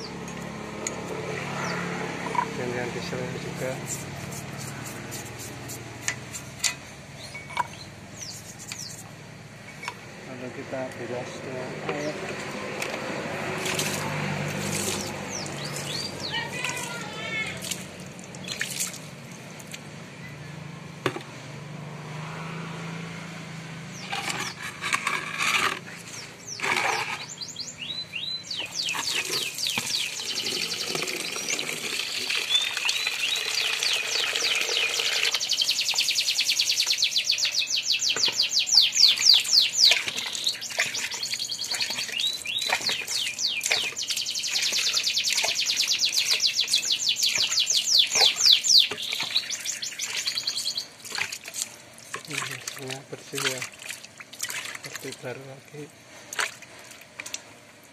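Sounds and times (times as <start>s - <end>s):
bird chirping: 0.0s - 10.0s, 13.7s - 17.8s, 18.4s - 20.6s, 23.8s - 25.1s, 25.7s - 51.1s
water pouring into plastic bucket: 30.3s - 35.4s.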